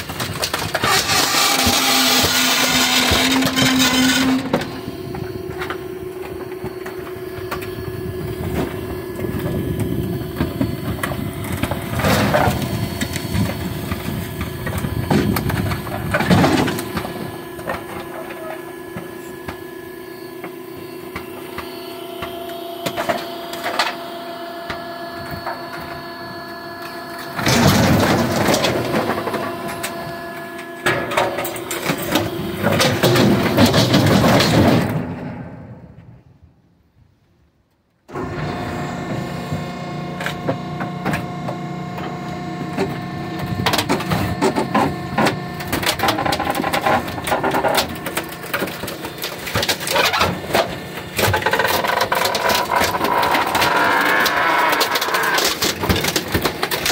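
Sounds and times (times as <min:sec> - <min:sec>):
wood cracking and splintering: 0:00.0 - 0:07.7, 0:42.8 - 0:56.9
hydraulic compactor humming: 0:00.0 - 0:36.3, 0:38.1 - 0:56.9.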